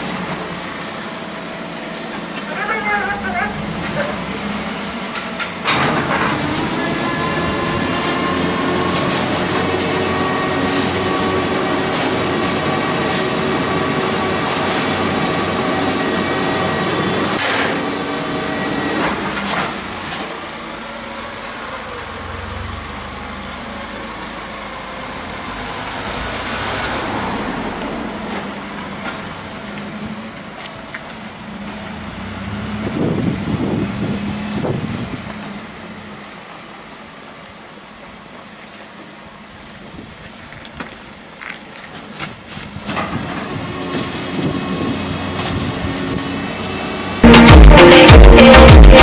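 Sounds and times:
truck engine pulling away: 0.0 - 30.4, 31.2 - 37.0
garbage truck compactor whine: 0.0 - 30.6, 42.8 - 49.0.

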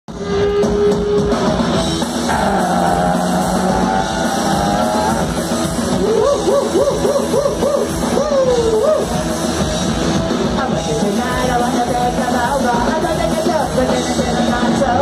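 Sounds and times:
punk rock band playing: 0.1 - 15.0
rising and falling pitched notes: 1.8 - 9.4.

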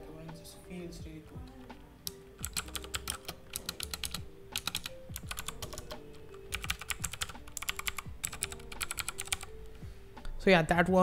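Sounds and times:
mechanical keyboard typing: 2.1 - 9.6.

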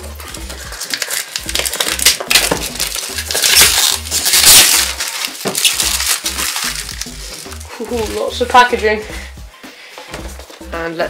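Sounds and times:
plastic wrap crinkling: 0.0 - 8.8.

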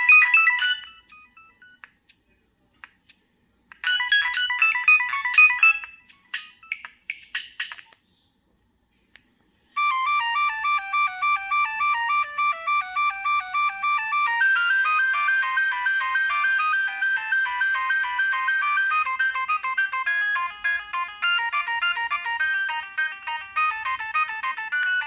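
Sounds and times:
mobile phone ringtone beeps: 0.0 - 1.8, 3.8 - 6.8, 9.8 - 25.0.

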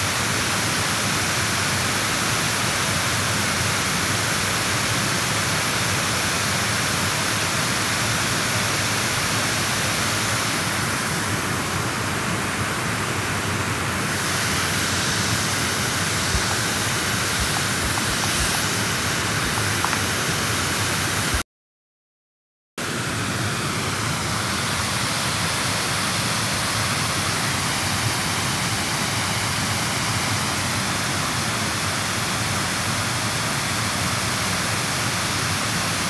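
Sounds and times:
steady rushing hiss: 0.0 - 21.4, 22.8 - 36.0.

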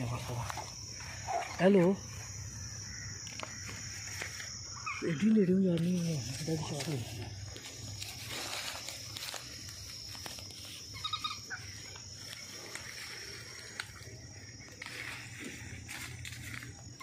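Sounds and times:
insects droning: 0.0 - 17.0
rapid chirping notes: 3.8 - 15.6.

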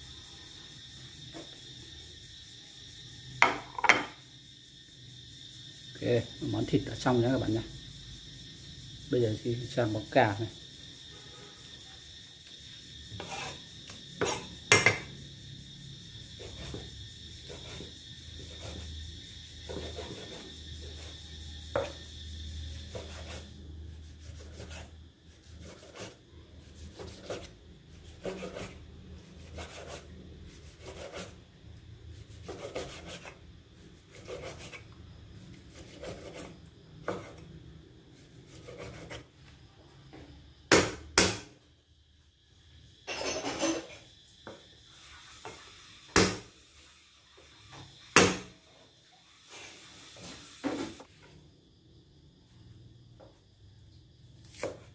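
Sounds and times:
knife scraping on cutting board: 13.2 - 13.6, 14.2 - 14.5, 19.7 - 21.1, 22.9 - 23.5, 24.2 - 28.8, 29.4 - 31.4, 32.2 - 33.4, 34.0 - 34.8, 35.7 - 37.4, 38.5 - 39.3
loud sharp knocks: 40.7 - 41.5, 46.1 - 46.5, 48.2 - 48.5.

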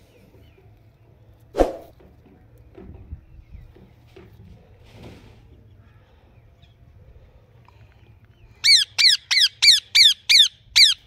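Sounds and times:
parakeet harsh calls: 8.6 - 11.0.

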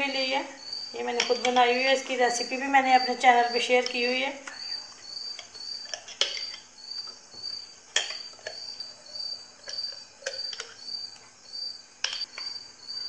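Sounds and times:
cricket chirping: 0.0 - 13.0
spoon scraping glass jar: 3.0 - 11.1.

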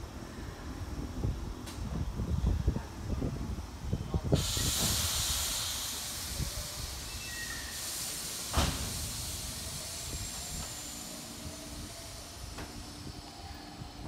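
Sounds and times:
compressed air hissing: 4.3 - 13.4.

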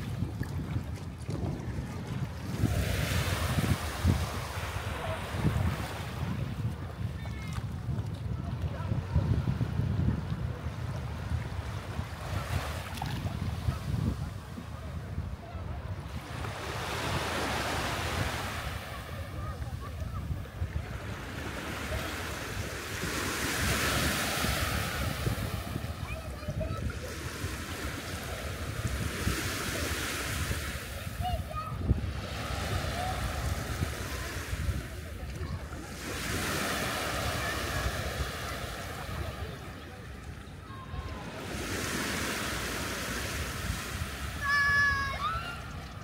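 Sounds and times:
sea waves washing on beach: 0.0 - 46.0
wind buffeting microphone: 0.0 - 46.0.

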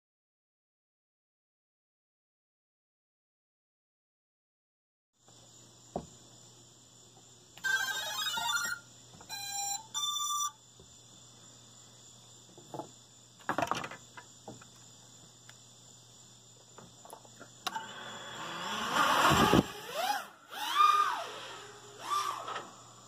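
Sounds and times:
electronic beep tones: 7.7 - 10.6
high electrical whine: 17.6 - 23.0.

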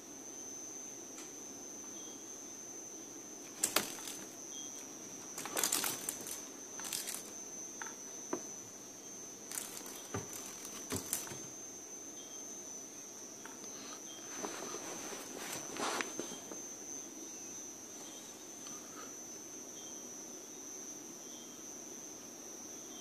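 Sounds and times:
faint high-pitched whine: 0.0 - 23.0
cat scratching on wooden floor: 3.5 - 4.3, 5.2 - 7.4, 9.5 - 11.5.

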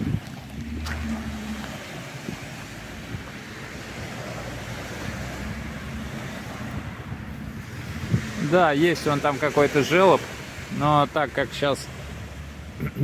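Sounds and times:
wind noise on microphone: 0.0 - 8.8
low engine hum: 0.0 - 9.3
waves washing onto pebbles: 0.0 - 12.8.

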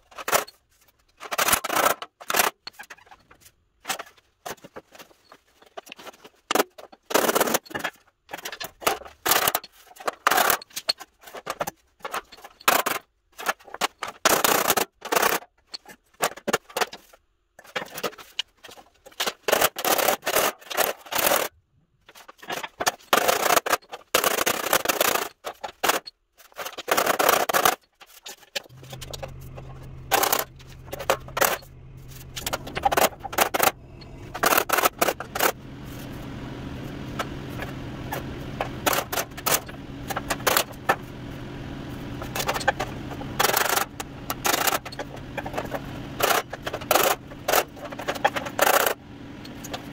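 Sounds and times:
steady low hum: 28.7 - 49.9.

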